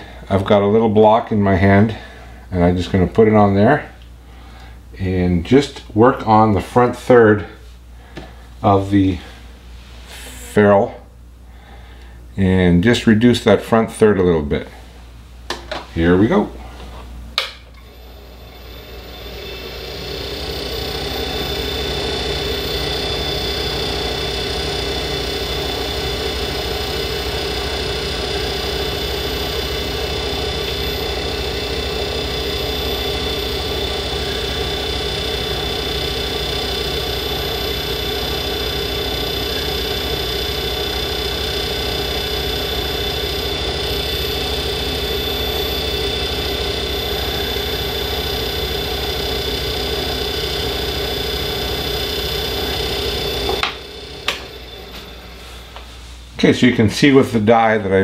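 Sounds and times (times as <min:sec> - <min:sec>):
lathe motor humming: 0:17.9 - 0:55.8.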